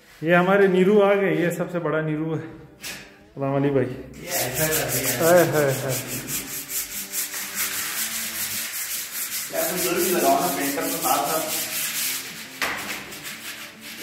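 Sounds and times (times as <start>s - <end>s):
sandpaper rubbing on plaster wall: 4.2s - 14.0s.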